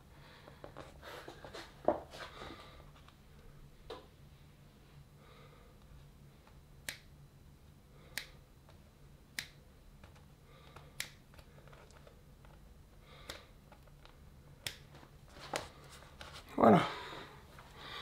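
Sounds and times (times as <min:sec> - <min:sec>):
faint low hum: 0:00.0 - 0:18.0
scissors snipping vinyl: 0:06.5 - 0:07.1, 0:08.1 - 0:12.6, 0:13.2 - 0:16.3.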